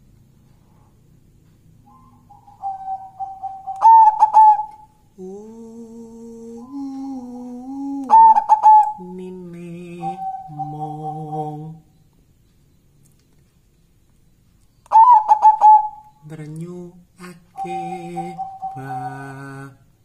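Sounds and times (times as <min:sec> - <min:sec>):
dove cooing: 0:01.9 - 0:04.9, 0:08.0 - 0:09.0, 0:14.9 - 0:16.1, 0:17.5 - 0:19.0
man singing held notes: 0:05.2 - 0:12.0, 0:16.2 - 0:20.0.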